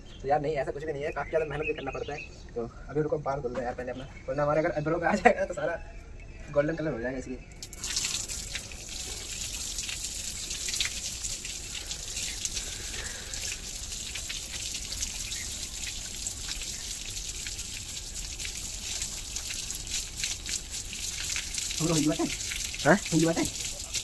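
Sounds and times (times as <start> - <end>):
water splashing on concrete floor: 7.6 - 24.0.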